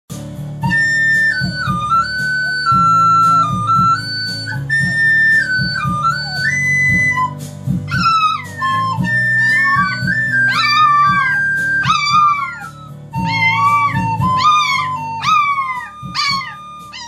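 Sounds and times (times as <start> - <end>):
flute-like melody with beat: 0.4 - 17.0
puppy howling: 7.9 - 17.0.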